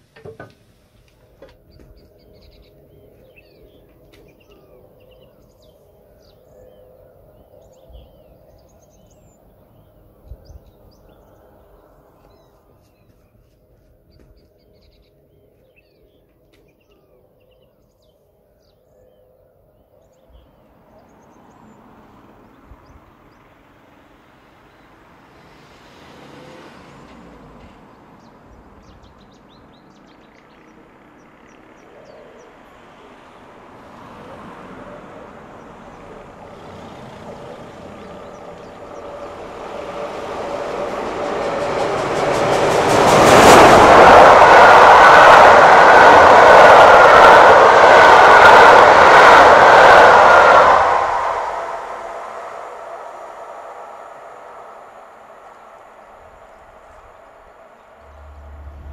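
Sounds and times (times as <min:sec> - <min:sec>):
birds chirping faintly: 0:00.0 - 0:25.6
steam locomotive approaching: 0:20.0 - 0:58.9.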